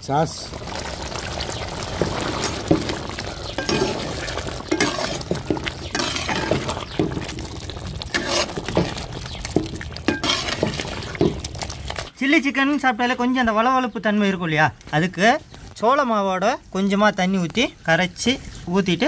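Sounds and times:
gravy bubbling: 0.0 - 12.2
ladle scraping and clinking pan: 2.0 - 12.0.

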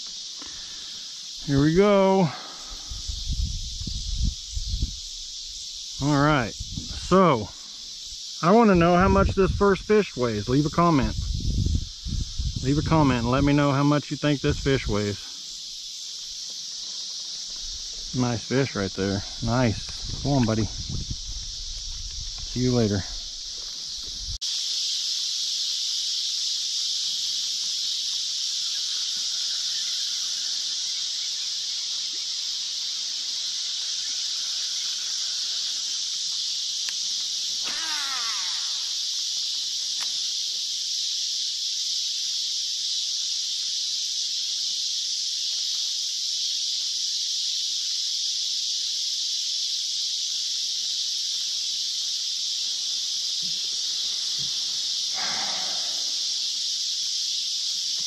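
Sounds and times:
insect chorus droning: 0.0 - 58.0
animal falling call: 37.6 - 39.0, 55.1 - 56.4.

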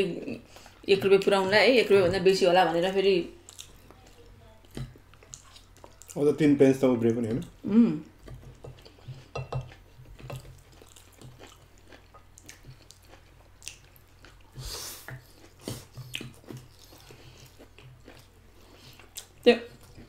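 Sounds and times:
chewing and slurping noodles: 8.3 - 20.0.

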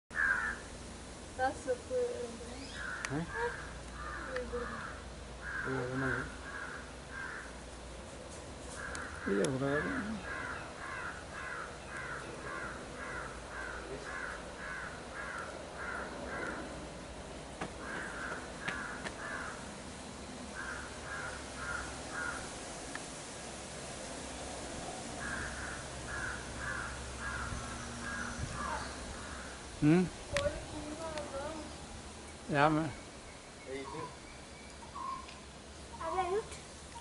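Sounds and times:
bird harsh calls: 0.1 - 0.7, 2.6 - 7.6, 8.7 - 16.8, 17.7 - 19.7, 20.5 - 22.5, 25.2 - 29.8, 32.5 - 36.4.

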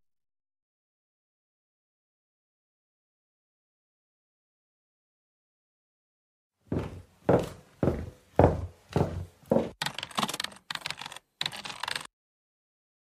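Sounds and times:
footsteps: 6.7 - 9.8
typing on computer keyboard: 9.8 - 12.1.

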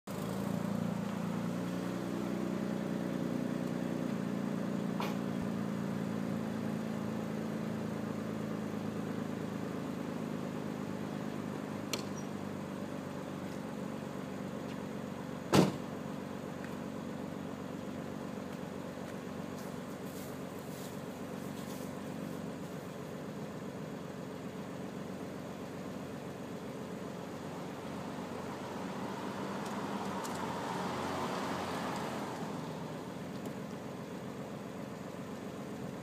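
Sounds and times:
car engine idling: 0.1 - 36.0
sharp thump: 5.0 - 5.3, 15.5 - 15.9.

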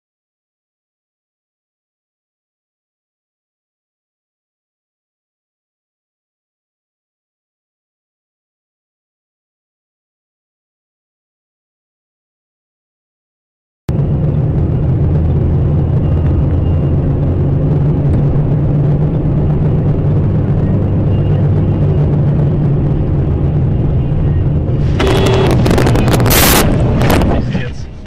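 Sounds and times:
car engine drone and road noise: 13.9 - 28.0
loud burst of noise: 18.9 - 28.0.

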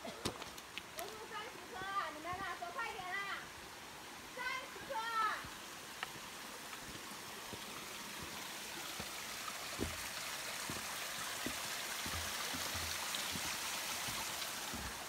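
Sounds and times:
stream running over rocks: 0.0 - 15.0
soft low thumps: 9.7 - 15.0.

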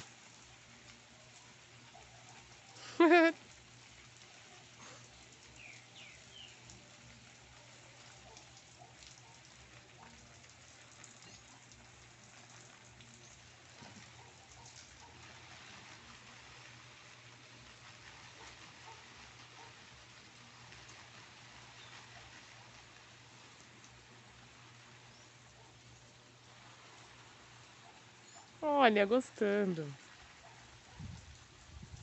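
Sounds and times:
hose water spraying on leaves: 0.0 - 32.0.

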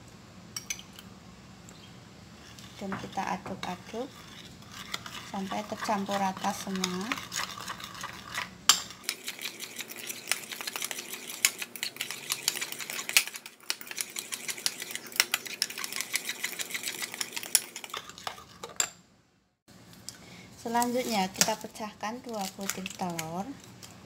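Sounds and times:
spoon scraping against bowl: 2.4 - 18.9.

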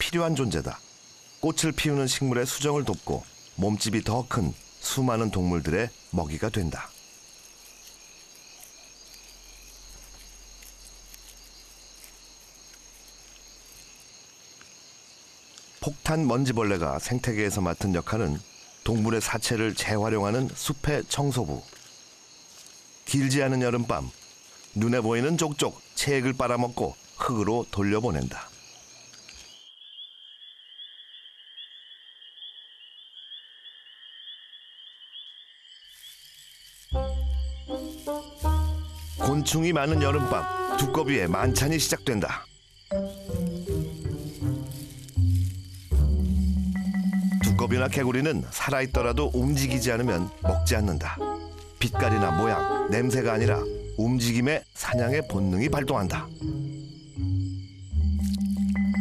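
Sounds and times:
night insects trilling: 0.0 - 59.0.

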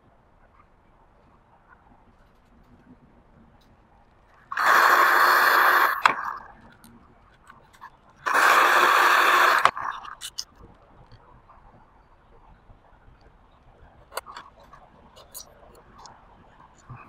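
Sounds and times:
hairdryer blowing: 4.6 - 6.3, 8.3 - 9.8.

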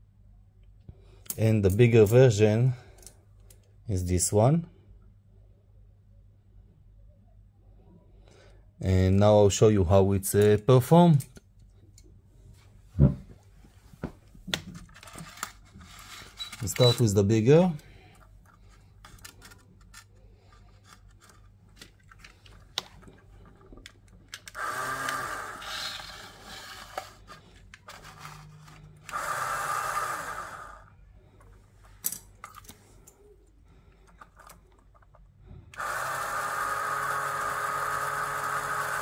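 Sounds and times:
plastic parts clicking together: 18.1 - 25.2, 31.9 - 33.2, 33.9 - 35.9
electric motor whining: 24.6 - 27.2, 28.2 - 30.9, 35.8 - 39.0.

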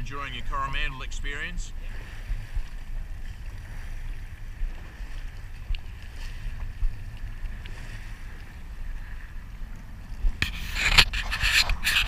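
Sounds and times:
small waves lapping against hull: 0.0 - 12.0
wind buffeting microphone: 0.0 - 12.0.

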